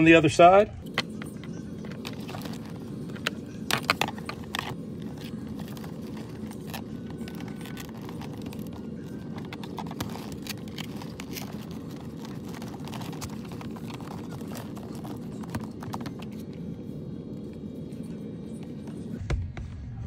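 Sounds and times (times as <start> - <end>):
steady low hum: 0.0 - 20.0
helmet plastic clicks and scrapes: 0.8 - 16.6.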